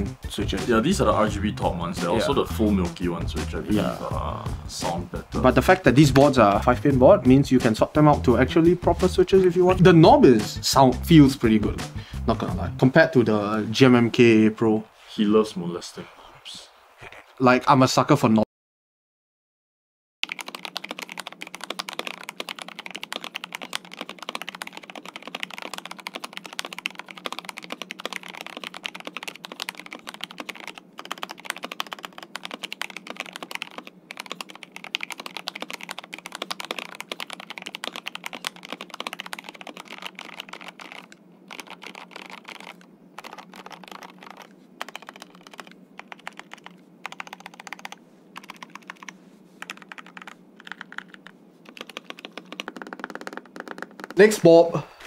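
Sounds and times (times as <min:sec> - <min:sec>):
mechanical keyboard typing: 0:20.2 - 0:54.3.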